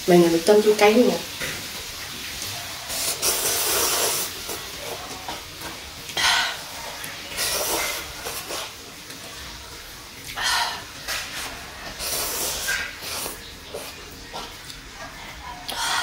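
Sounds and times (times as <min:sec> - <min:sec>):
person slurping noodles: 0:02.9 - 0:05.1, 0:11.4 - 0:14.5.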